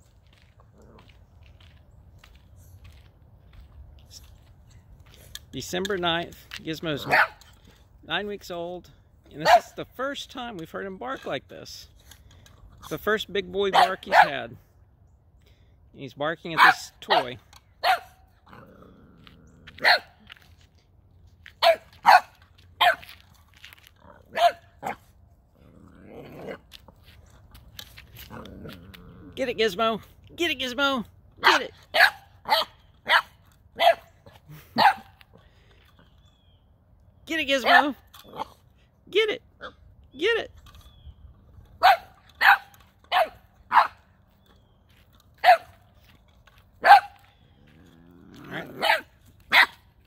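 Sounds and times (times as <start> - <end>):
puppy barking: 7.0 - 7.4, 9.4 - 9.7, 13.7 - 14.4, 16.6 - 18.2, 19.8 - 20.2, 21.6 - 23.1, 24.3 - 25.0, 31.4 - 34.1, 34.8 - 35.1, 37.6 - 38.0, 41.8 - 44.0, 45.4 - 45.8, 46.8 - 47.2, 48.5 - 49.8.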